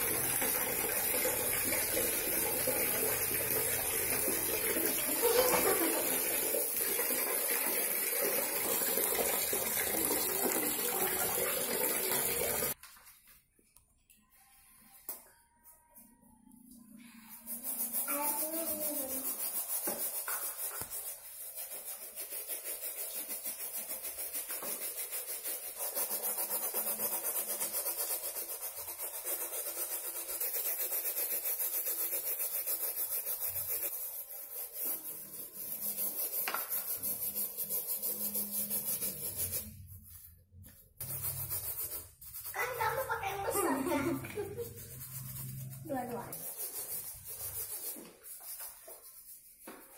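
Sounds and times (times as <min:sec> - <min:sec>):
brushes scrubbing sneakers: 0:00.0 - 0:06.4, 0:17.1 - 0:49.9.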